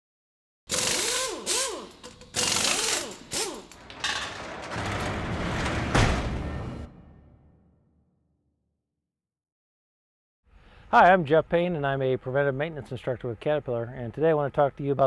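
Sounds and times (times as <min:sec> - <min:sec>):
mechanical ratchet clattering: 0:00.7 - 0:03.9.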